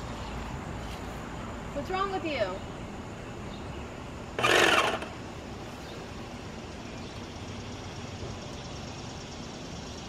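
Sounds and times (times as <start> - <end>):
paint sprayer running: 4.4 - 5.2.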